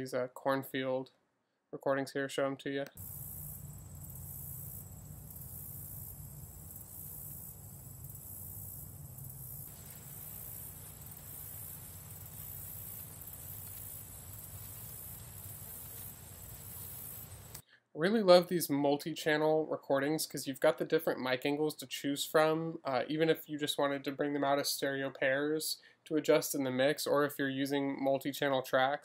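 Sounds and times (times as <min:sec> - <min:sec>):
cicadas buzzing: 0:03.0 - 0:17.6
light wind rumble: 0:03.5 - 0:17.6.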